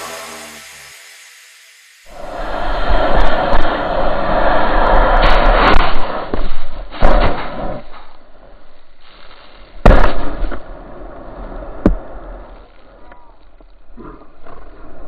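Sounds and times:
sliding through sand rumble: 2.1s - 7.8s.

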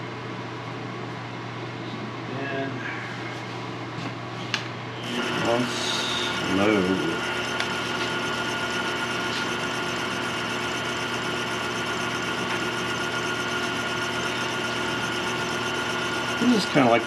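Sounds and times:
lathe motor humming: 5.0s - 17.0s.

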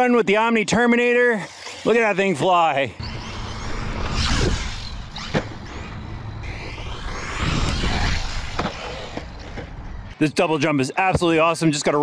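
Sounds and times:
electric motor whining: 3.0s - 10.2s.

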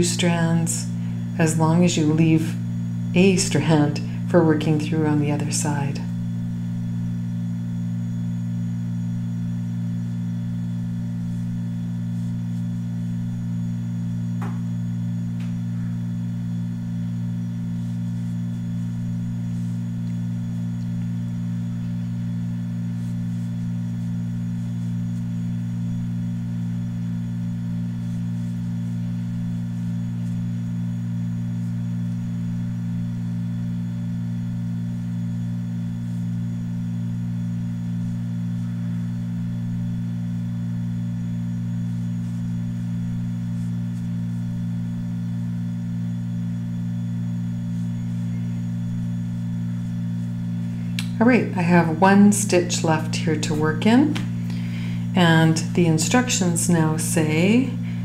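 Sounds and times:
low drone of held tones: 12.7s - 17.8s, 37.4s - 40.6s, 46.8s - 58.0s.

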